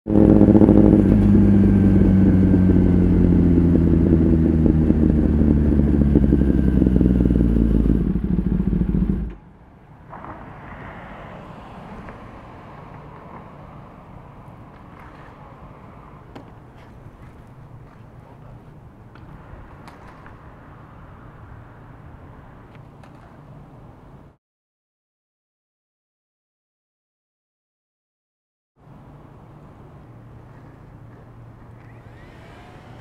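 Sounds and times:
motorcycle engine running: 0:00.1 - 0:09.4.

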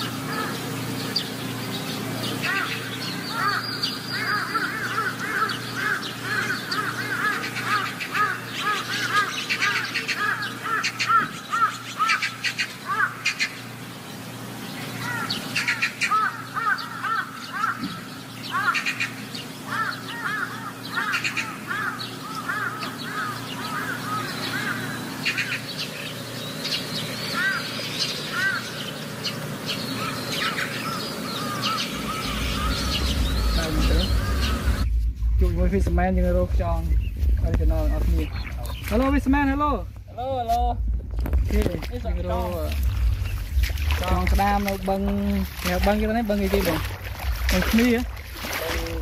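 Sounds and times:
birds chirping: 0:00.0 - 0:49.0
steady low hum: 0:00.0 - 0:49.0.

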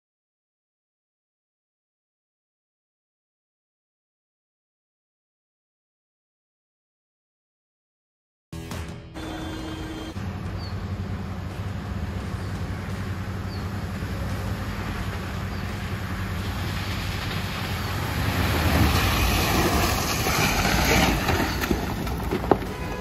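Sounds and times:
car engine running: 0:09.2 - 0:19.7
tyres splashing through mud: 0:10.2 - 0:23.0.

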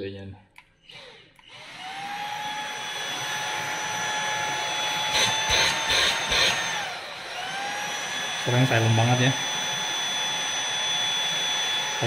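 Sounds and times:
vacuum motor whine: 0:00.8 - 0:12.0.

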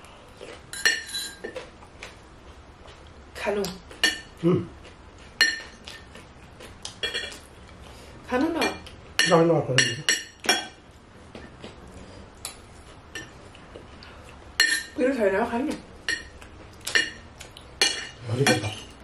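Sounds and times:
cutlery clinking on ceramic dishes: 0:00.7 - 0:01.6, 0:05.4 - 0:06.1, 0:07.0 - 0:07.4, 0:08.6 - 0:10.8, 0:14.6 - 0:15.0, 0:16.1 - 0:17.2, 0:17.8 - 0:19.0.

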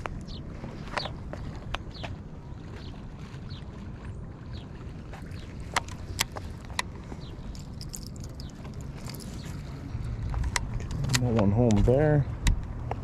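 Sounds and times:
water lapping against wall: 0:00.0 - 0:13.0
wind rumble on microphone: 0:00.0 - 0:13.0.

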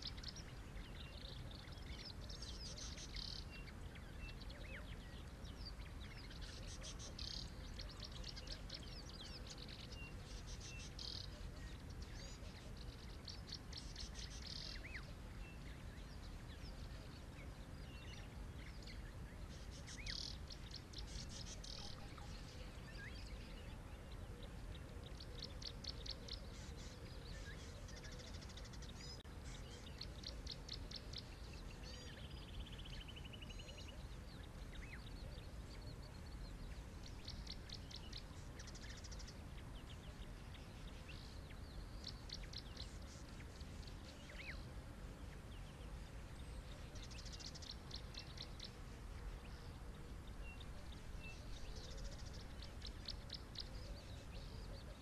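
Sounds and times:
birds trilling and chirping: 0:00.0 - 0:55.0.

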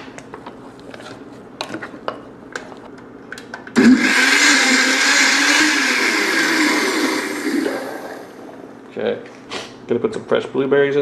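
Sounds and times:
blender running: 0:03.8 - 0:08.4.

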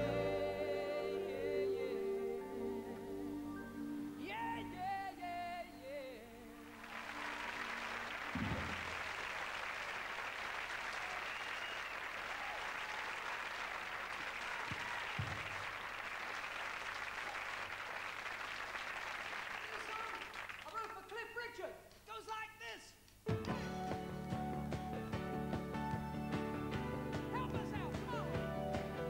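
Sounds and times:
audience applause: 0:06.7 - 0:21.1
low thumps: 0:08.3 - 0:09.1.

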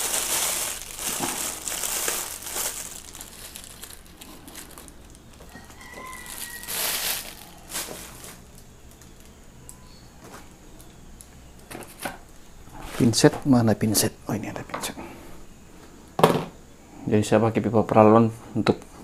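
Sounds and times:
packaging crinkling: 0:00.0 - 0:09.4.

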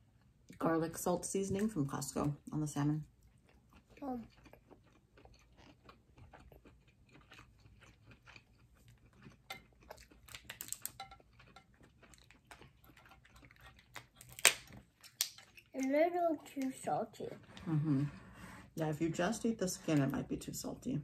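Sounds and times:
chewing with wet mouth clicks: 0:03.2 - 0:16.8.

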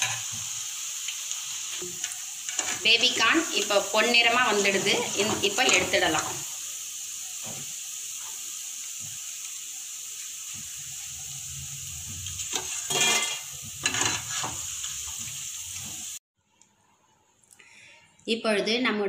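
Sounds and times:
oil sizzling in deep fryer: 0:00.0 - 0:16.3
metal spoon scraping pan: 0:01.8 - 0:03.0, 0:12.5 - 0:14.6.

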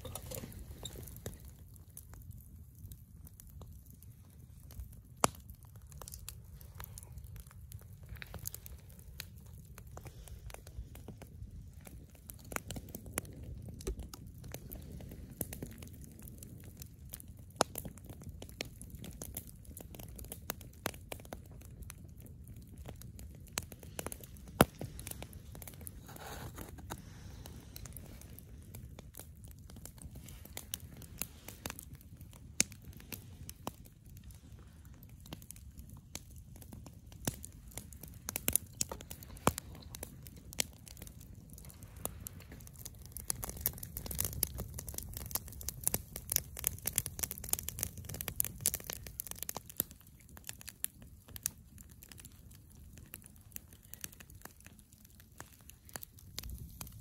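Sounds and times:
campfire crackling and popping: 0:00.0 - 0:57.0.

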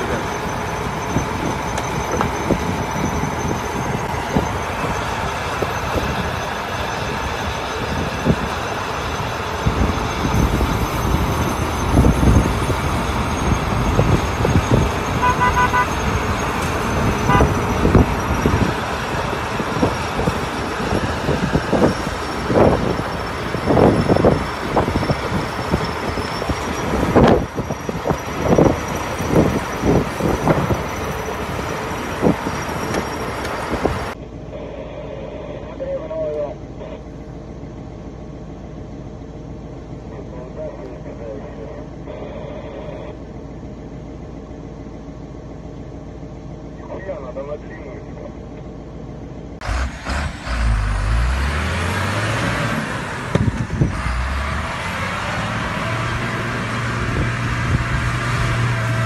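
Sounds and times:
wind buffeting microphone: 0:00.0 - 0:15.2, 0:16.0 - 0:34.2, 0:53.2 - 0:54.3
truck engine running: 0:00.0 - 0:59.0.

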